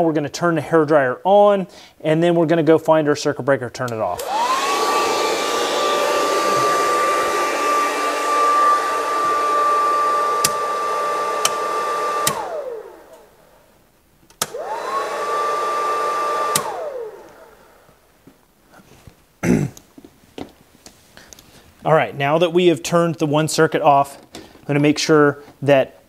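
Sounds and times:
motor winding down: 4.2s - 13.2s, 14.4s - 17.6s
hair dryer running: 4.2s - 13.4s, 14.4s - 18.0s
circuit breaker clicks: 10.4s - 10.6s.

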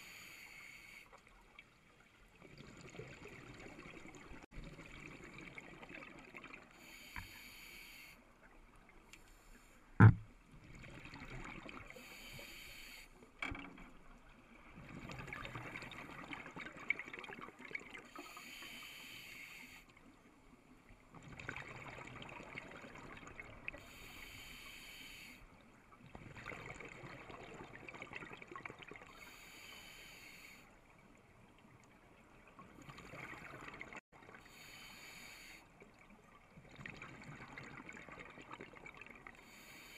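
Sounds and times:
scuba regulator inhales: 0.0s - 1.1s, 6.8s - 8.2s, 11.9s - 13.2s, 18.2s - 19.9s, 23.8s - 25.5s, 29.1s - 30.7s, 34.5s - 35.7s, 39.4s - 39.9s
sharp knock: 10.0s - 10.2s.

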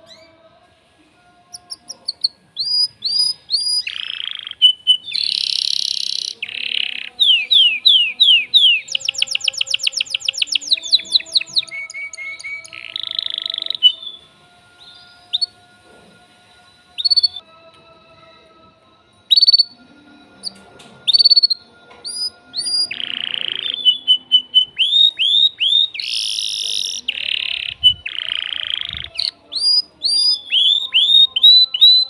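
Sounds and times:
canary singing: 0.0s - 0.6s, 1.2s - 17.6s, 19.1s - 32.0s.

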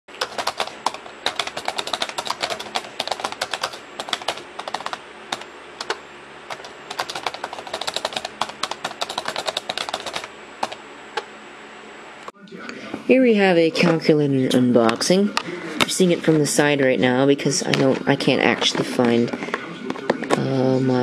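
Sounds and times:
computer keyboard typing: 0.1s - 11.3s.

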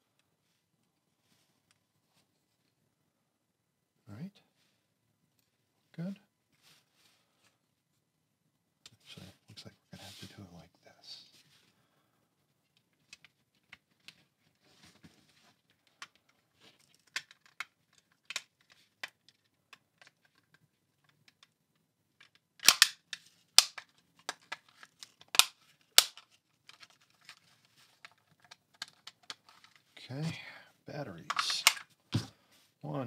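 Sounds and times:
sharp plastic clicks: 22.2s - 27.4s, 31.3s - 31.9s.

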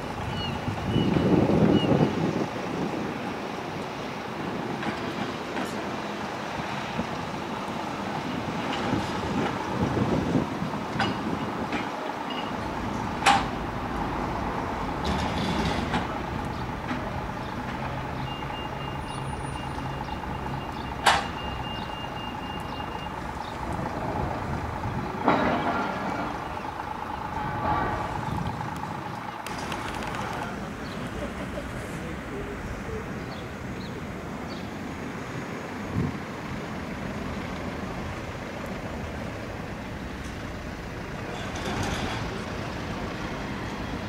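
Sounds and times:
tram rumbling: 0.0s - 44.0s
sharp clicks: 28.4s - 31.1s.

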